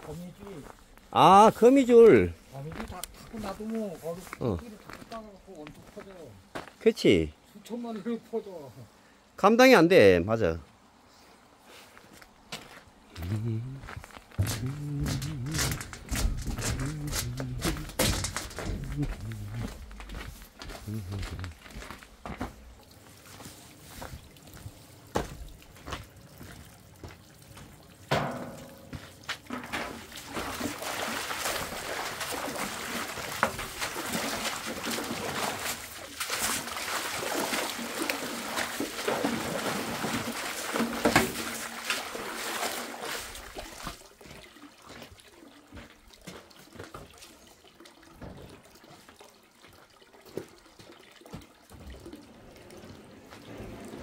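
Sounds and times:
water running and splashing: 13.9s - 54.0s
clicks and knocks: 14.5s - 19.0s.

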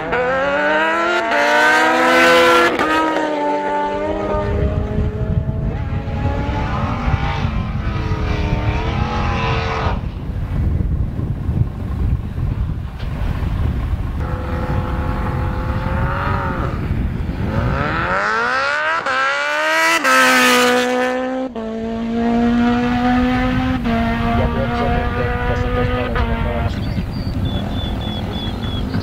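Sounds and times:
drag racing engine revving: 14.2s - 29.0s.

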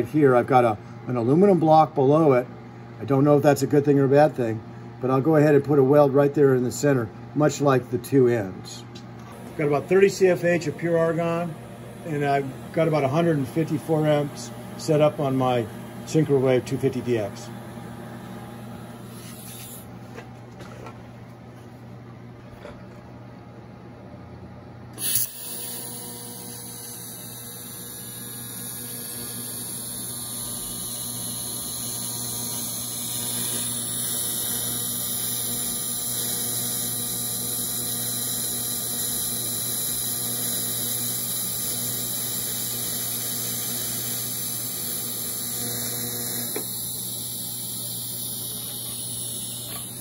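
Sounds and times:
welding arc buzzing with hiss: 9.2s - 19.9s, 25.0s - 50.0s.

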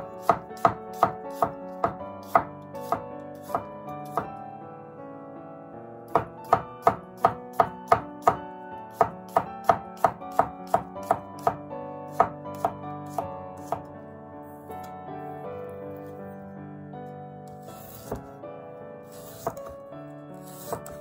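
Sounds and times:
knife chopping on wooden board: 0.0s - 4.3s, 6.1s - 13.9s, 17.7s - 18.3s, 19.2s - 19.8s, 20.4s - 21.0s.

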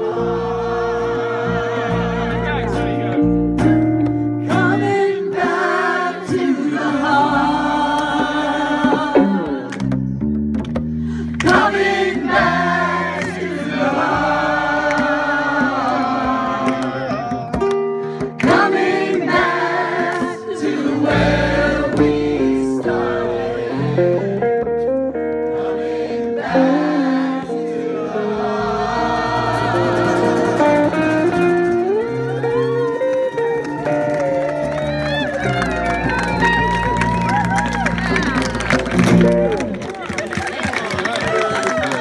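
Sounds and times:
group singing in chorus: 0.0s - 2.7s, 4.4s - 10.0s, 11.4s - 17.4s, 18.2s - 24.4s, 25.4s - 31.6s
bass: 0.0s - 5.6s, 6.3s - 42.0s
acoustic guitar: 0.0s - 6.6s, 7.2s - 12.1s, 14.2s - 25.7s, 27.5s - 40.0s.

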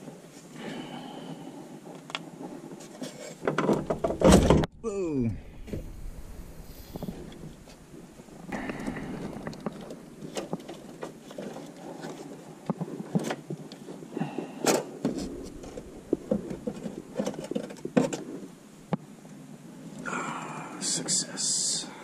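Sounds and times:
clicks and knocks: 3.4s - 4.7s
rustling: 5.3s - 20.0s.

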